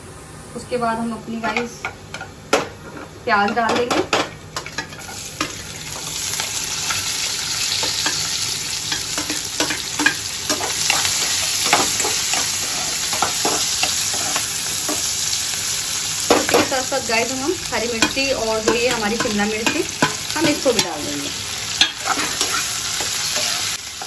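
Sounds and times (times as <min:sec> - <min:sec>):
onion sizzling in oil: 0:04.2 - 0:24.0
spatula scraping pan: 0:04.6 - 0:15.1, 0:17.8 - 0:23.8.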